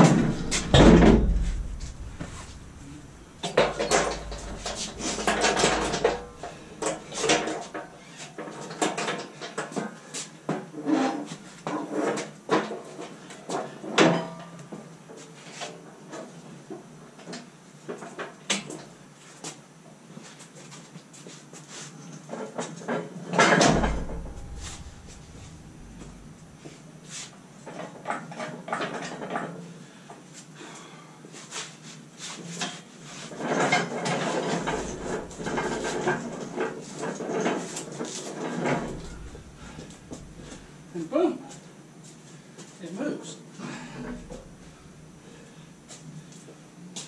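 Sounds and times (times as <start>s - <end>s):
heavy clunk: 0.0s - 7.8s, 23.6s - 26.7s, 34.2s - 36.6s, 38.6s - 40.9s, 43.9s - 45.4s
steel knocks and clanks: 0.0s - 7.8s, 23.6s - 26.7s, 33.7s - 36.6s, 38.6s - 40.9s, 44.0s - 45.1s
rolling rumble and rattling: 0.0s - 7.9s, 23.6s - 26.8s, 33.9s - 41.0s, 43.9s - 45.5s.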